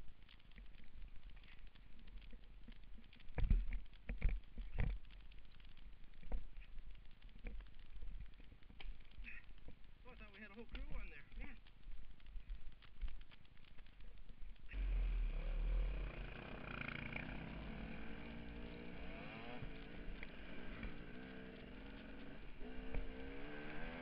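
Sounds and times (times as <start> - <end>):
dirt bike engine revving: 14.7 - 24.0.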